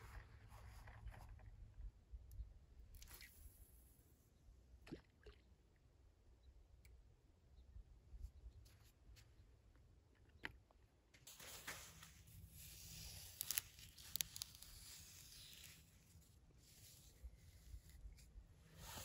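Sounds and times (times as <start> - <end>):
stick scraping wet sand: 11.3 - 19.0.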